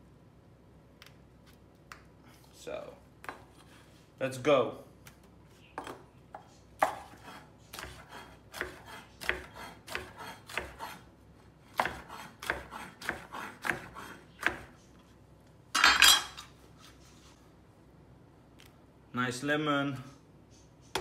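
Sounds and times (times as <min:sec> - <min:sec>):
knife chopping on wooden board: 0:05.8 - 0:11.0, 0:11.7 - 0:14.7.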